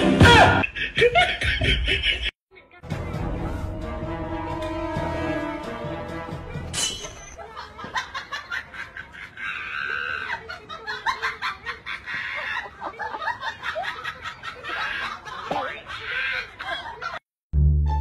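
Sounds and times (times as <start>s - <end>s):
people laughing: 0.5s - 2.4s, 7.4s - 17.3s.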